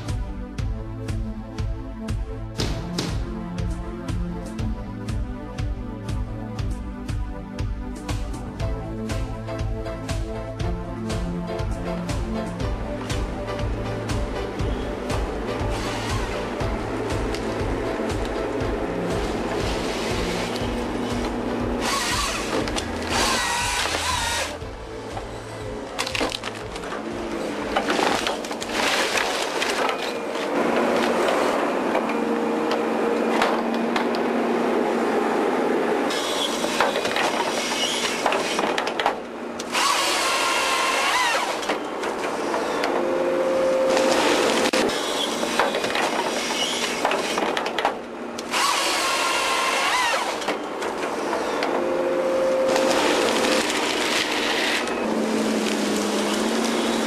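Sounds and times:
excavator engine and hydraulics: 0:00.0 - 0:57.0
chain saw cutting trunks: 0:21.2 - 0:24.6, 0:39.6 - 0:41.8, 0:48.4 - 0:51.6, 0:52.7 - 0:57.0.

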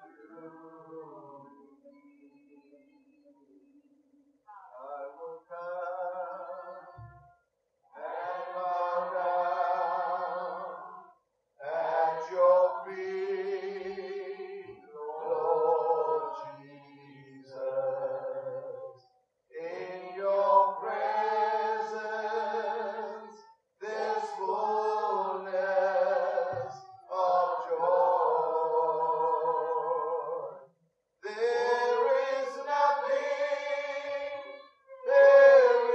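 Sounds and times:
group singing unaccompanied: 0:07.9 - 0:18.9, 0:19.6 - 0:35.9.

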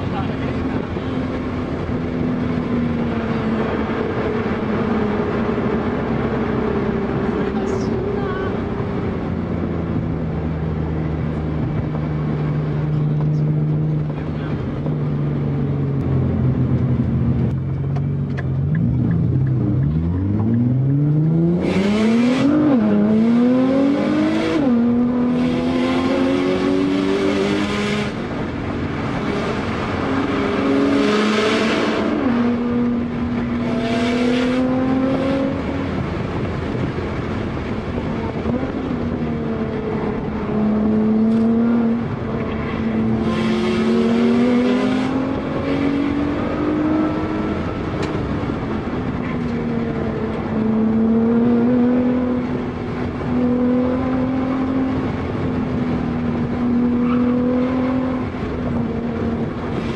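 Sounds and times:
rotary engine revving: 0:18.8 - 0:36.9, 0:37.8 - 0:59.9.

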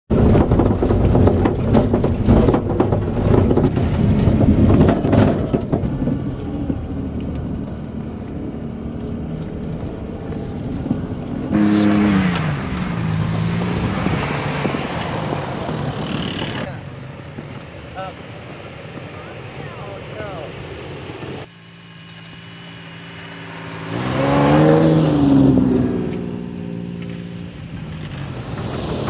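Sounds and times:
tyre noise on snow: 0:00.1 - 0:21.5, 0:22.2 - 0:29.0
truck engines running: 0:00.1 - 0:29.0.

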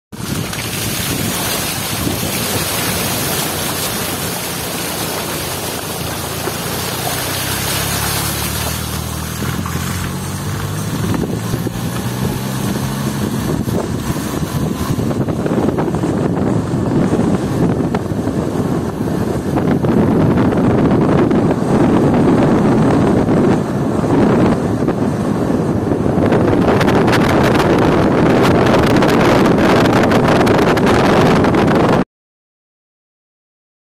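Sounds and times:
van engine hum: 0:00.1 - 0:32.0
wind buffeting microphone: 0:00.1 - 0:32.0
tyres hissing through water: 0:00.2 - 0:13.2
tyre noise: 0:00.2 - 0:16.5.

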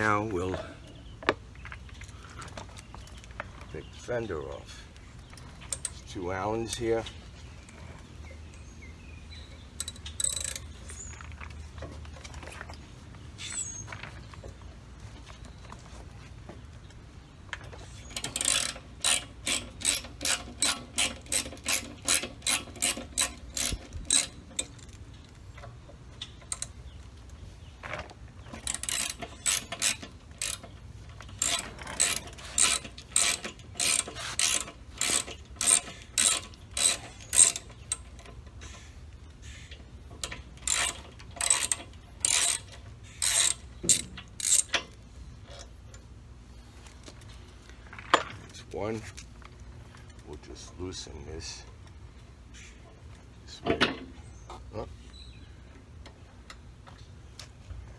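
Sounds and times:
ratchet wrench clicking: 0:09.8 - 0:10.7, 0:18.1 - 0:25.0, 0:28.6 - 0:30.8, 0:31.4 - 0:38.4, 0:40.2 - 0:45.0.

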